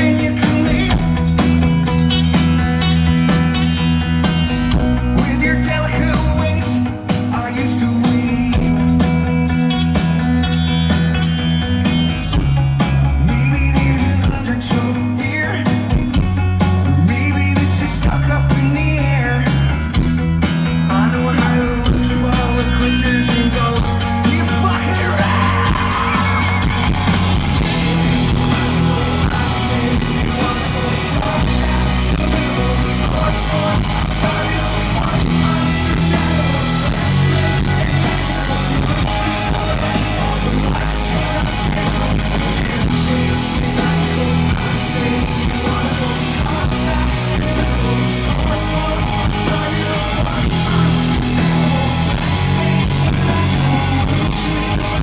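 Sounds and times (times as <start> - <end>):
arena crowd: 0.0 - 55.0
bass guitar: 0.0 - 55.0
drums: 0.0 - 55.0
electric guitar: 0.0 - 55.0
voices singing and yelling: 20.8 - 55.0.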